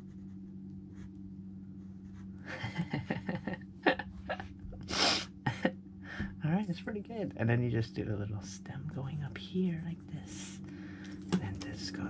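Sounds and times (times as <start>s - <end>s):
low steady hum: 0.0s - 12.0s
person breathing: 4.8s - 5.4s, 6.0s - 6.4s, 10.4s - 11.3s.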